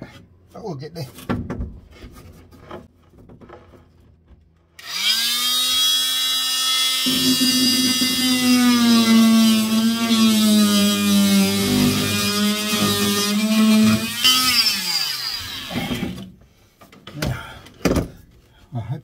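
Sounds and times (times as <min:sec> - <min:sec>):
oscillating multi-tool cutting wood: 0:04.8 - 0:16.2.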